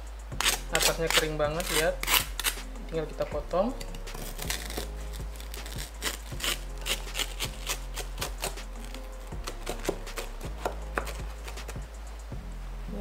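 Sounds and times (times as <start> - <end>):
knife sawing crunchy bread: 0.4 - 2.7, 3.8 - 11.8.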